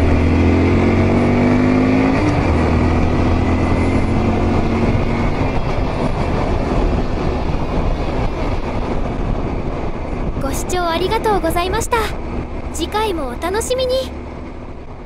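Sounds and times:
wind noise on microphone: 2.2 - 12.8.

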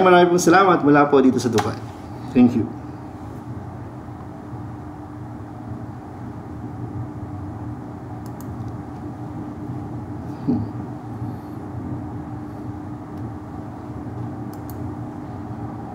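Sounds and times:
low background hum: 0.0 - 15.9
man coughing: 10.3 - 10.8.

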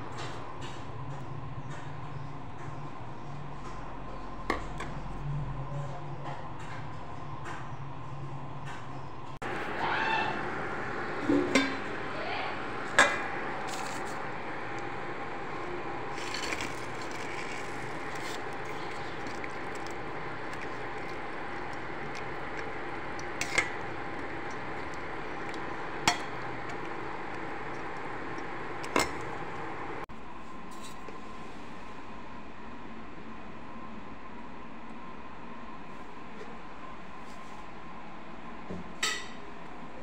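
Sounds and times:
steady background hum: 0.0 - 40.0
metal ladle clinking on steel pot: 26.1 - 26.8.

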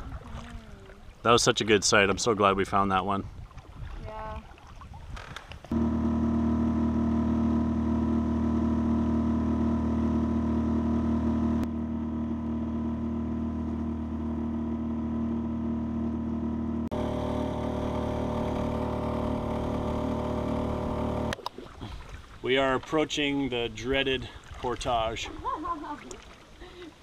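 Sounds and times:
outboard motor drone: 5.4 - 22.2.

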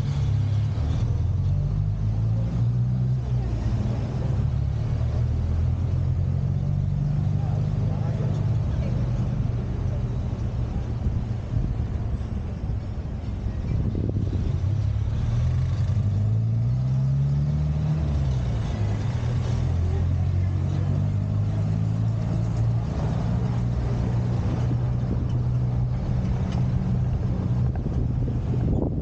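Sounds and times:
road and wind noise: 0.0 - 29.0
car engine running: 18.0 - 29.0.

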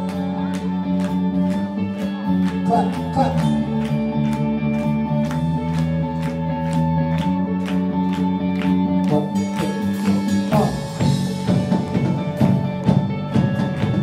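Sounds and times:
bass guitar line: 0.0 - 14.0
electric guitar chords: 0.0 - 14.0
steady drum beat: 9.0 - 14.0.

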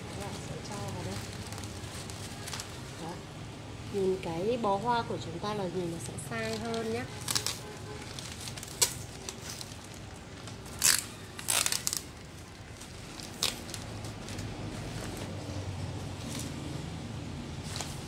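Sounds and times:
wrapping paper rustling and crinkling: 0.0 - 3.4, 6.2 - 18.0
sharp crackles: 6.4 - 15.1.

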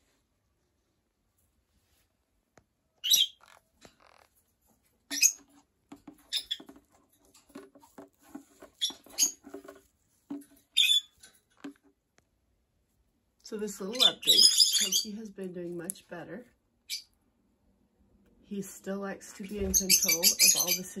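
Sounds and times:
parrot squawking: 10.8 - 11.1, 13.9 - 15.1, 19.8 - 20.8.

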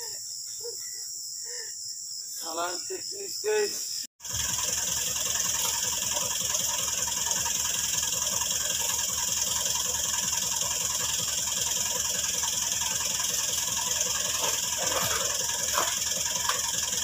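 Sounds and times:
tractor diesel engine idling: 4.2 - 17.0.

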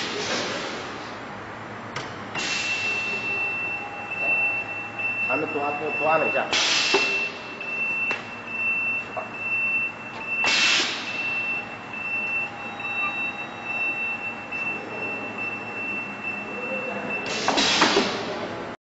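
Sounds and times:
compressed air hiss: 6.5 - 7.1, 10.4 - 11.1, 17.3 - 18.1
conveyor line high-pitched whine: 10.9 - 17.3.

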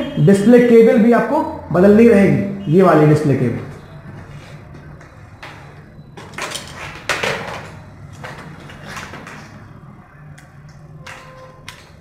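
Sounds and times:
computer parts clattering and scraping: 5.5 - 9.7.

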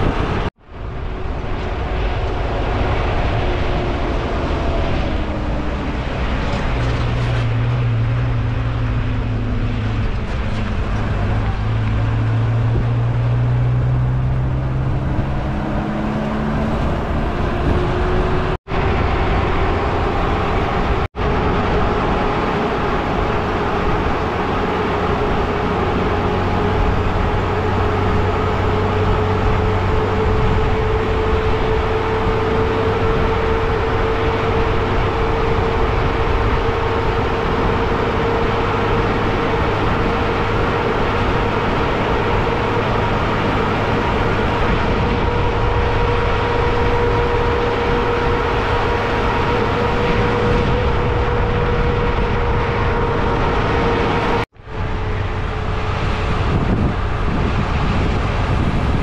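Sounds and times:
vehicle engine and road noise: 0.0 - 59.0
steady whine: 14.8 - 59.0.

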